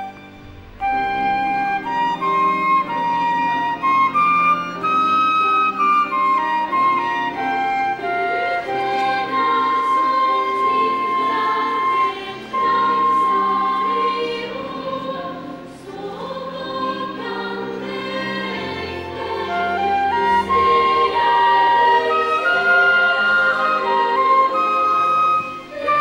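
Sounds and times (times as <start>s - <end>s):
flute holding long high notes: 0.0s - 14.7s, 19.1s - 26.0s
choir singing in a church: 0.0s - 26.0s.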